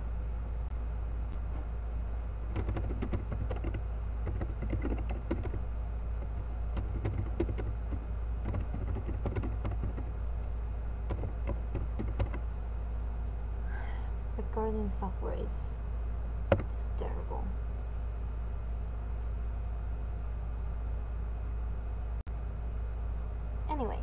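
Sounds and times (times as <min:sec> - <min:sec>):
low hum: 0:00.0 - 0:24.0
keyboard key clicks: 0:02.6 - 0:05.6, 0:06.3 - 0:10.1, 0:11.1 - 0:12.4, 0:16.5 - 0:16.7.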